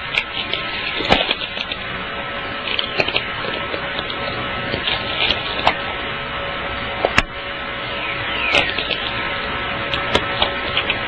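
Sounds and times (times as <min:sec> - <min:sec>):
dense crackling static: 0:00.0 - 0:11.0
falling whistle: 0:07.9 - 0:09.0.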